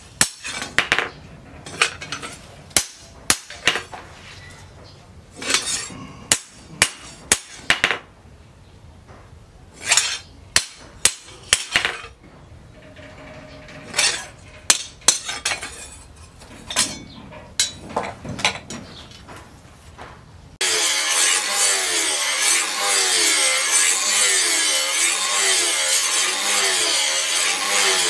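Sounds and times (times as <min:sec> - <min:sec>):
hammer striking metal blade: 0:02.8 - 0:03.8, 0:05.4 - 0:08.0, 0:09.8 - 0:12.1, 0:13.9 - 0:15.9.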